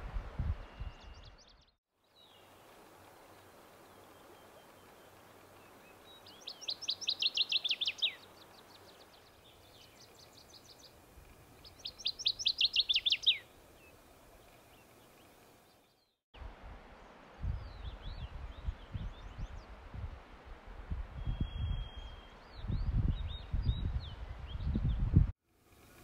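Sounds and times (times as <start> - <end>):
fainter bird song: 0.4 - 16.2, 17.0 - 19.8, 21.2 - 26.0
bird singing sharp down-slurred notes: 5.9 - 11.0, 11.6 - 13.5, 21.2 - 25.0.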